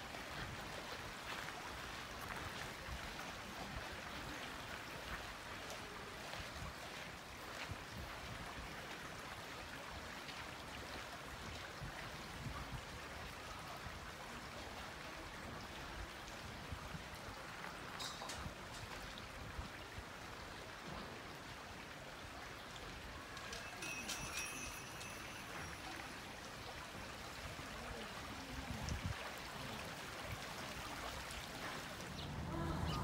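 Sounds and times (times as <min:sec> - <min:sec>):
stream rushing: 0:00.0 - 0:33.0.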